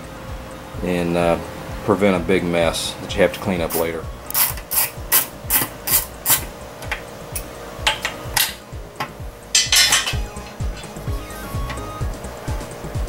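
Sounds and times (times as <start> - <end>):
hand ratchet clicking: 3.7 - 8.6
metal clattering: 9.5 - 11.1.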